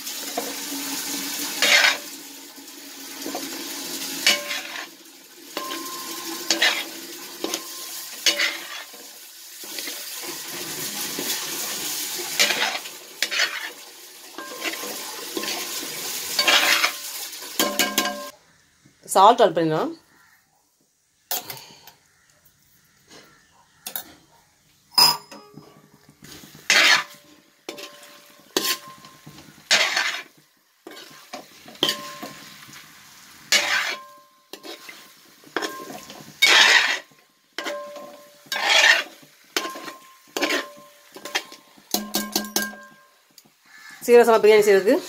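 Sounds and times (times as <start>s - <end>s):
spoon scraping in metal pot: 1.6s - 2.0s, 4.2s - 4.9s, 5.6s - 9.0s, 12.4s - 13.8s, 16.3s - 17.0s, 25.0s - 32.5s, 33.5s - 35.0s, 35.6s - 43.0s
sharp metallic clink: 25.0s - 25.6s.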